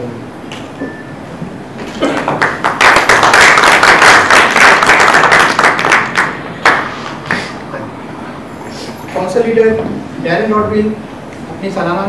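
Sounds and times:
audience applauding: 2.0s - 7.5s.

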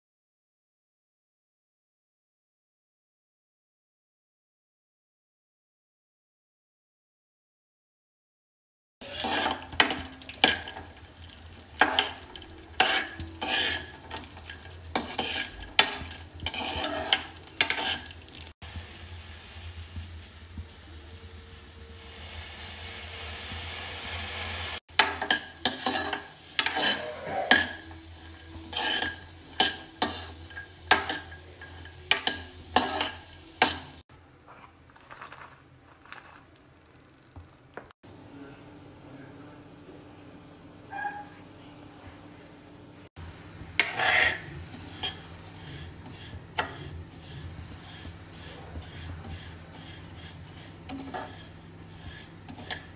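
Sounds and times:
milk hissing in a pan: 9.0s - 24.8s, 43.8s - 52.9s
metal spoon clinking on steel: 11.8s - 18.4s, 25.0s - 33.9s.

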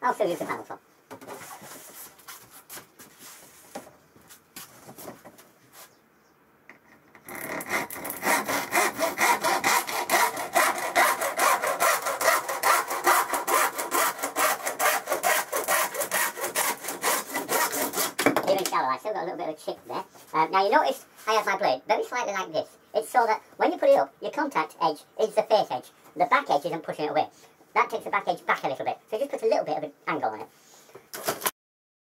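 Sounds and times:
hand saw cutting plastic board: 7.3s - 18.4s.

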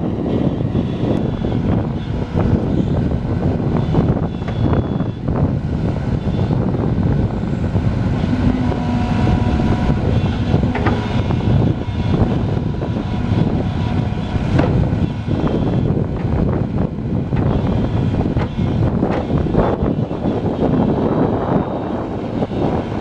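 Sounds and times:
excavator diesel engine working: 0.0s - 23.0s
hydraulic whine: 0.0s - 23.0s
sharp metal knocks: 8.2s - 15.2s.

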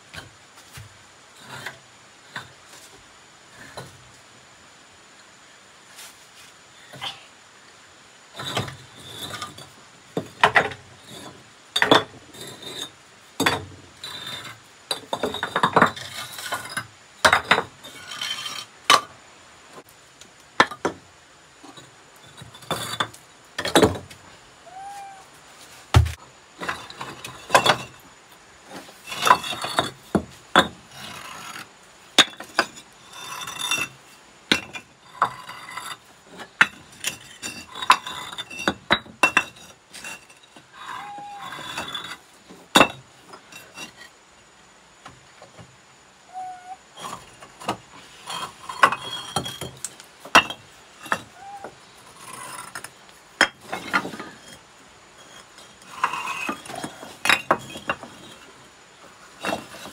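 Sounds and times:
clinks and knocks of hard objects: 8.4s - 19.1s, 20.6s - 21.0s, 21.6s - 24.2s, 26.0s - 28.0s, 32.2s - 44.0s, 47.0s - 58.5s.

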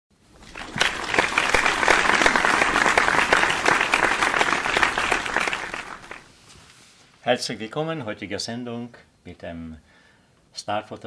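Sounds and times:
applause: 0.4s - 6.3s.

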